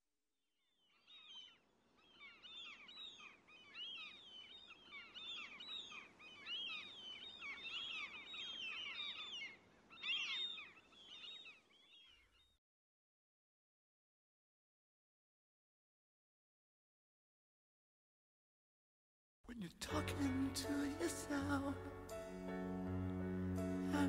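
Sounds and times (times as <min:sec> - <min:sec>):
flock of birds chirping: 0:00.8 - 0:12.6.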